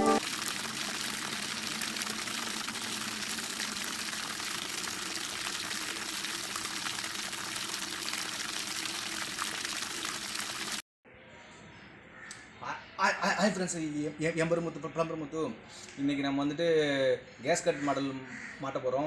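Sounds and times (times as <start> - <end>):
splashing bubbling water: 0.0 - 10.8.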